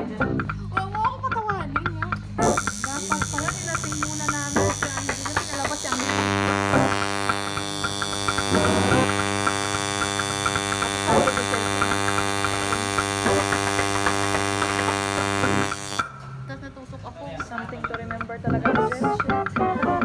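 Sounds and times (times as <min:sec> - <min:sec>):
tattoo machine buzzing: 0:02.4 - 0:16.2.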